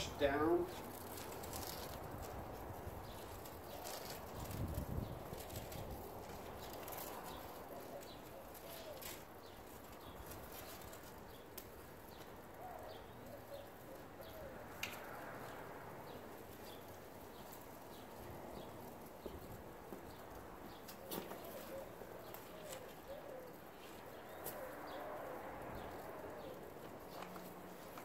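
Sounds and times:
dove cooing: 7.0s - 10.8s, 12.6s - 15.6s, 20.7s - 27.2s.

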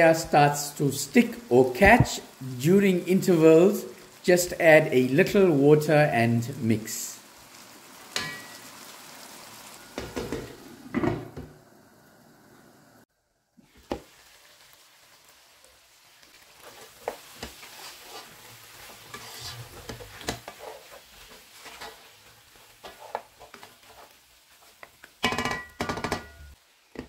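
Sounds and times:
curry sizzling in a frying pan: 0.0s - 27.0s
wooden spatula scraping pan: 16.6s - 25.7s.

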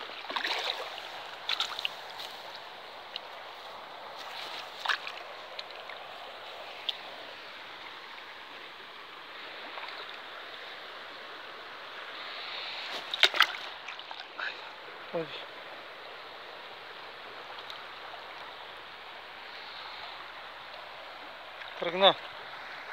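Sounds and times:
sharp water splashes: 0.0s - 2.4s, 4.2s - 5.9s, 12.9s - 14.4s
river water running: 0.0s - 22.9s.

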